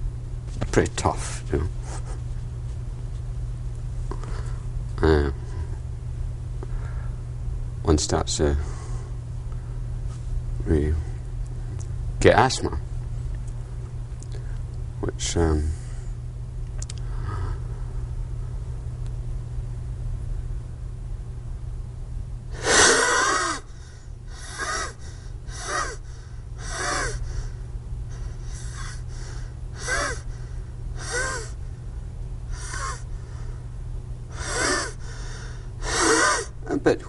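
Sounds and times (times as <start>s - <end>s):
man wheezing and gasping: 22.6s - 31.7s, 32.5s - 33.6s, 34.3s - 36.6s.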